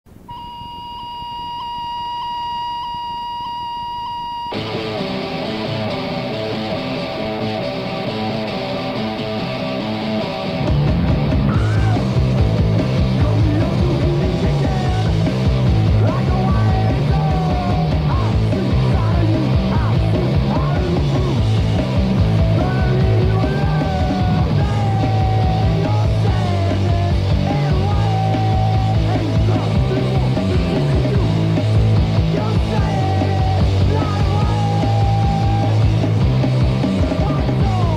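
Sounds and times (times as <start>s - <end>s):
held high tone: 0.1s - 4.8s
punk rock band playing: 4.5s - 37.9s.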